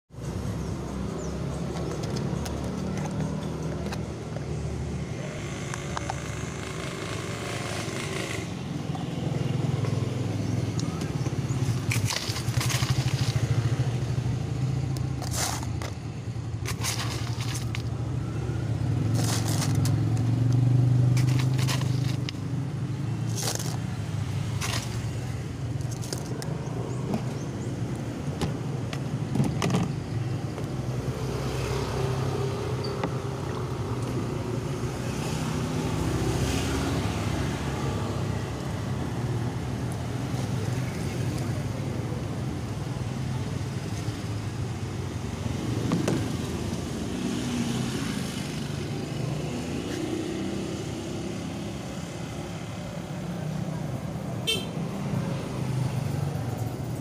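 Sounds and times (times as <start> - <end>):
ice scraping into plastic cup: 16.7 - 17.9, 19.1 - 20.0, 21.2 - 22.3.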